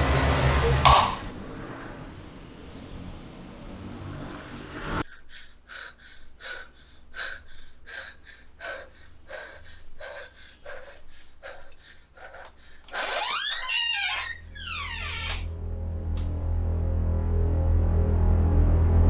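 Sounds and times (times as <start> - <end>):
woman breathing hard and fast: 5.0 - 13.0
eerie film music with sliding tones: 15.5 - 19.0.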